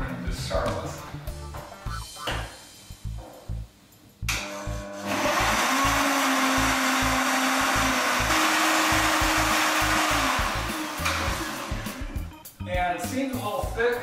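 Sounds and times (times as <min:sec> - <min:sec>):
blender motor running: 0:04.4 - 0:12.3.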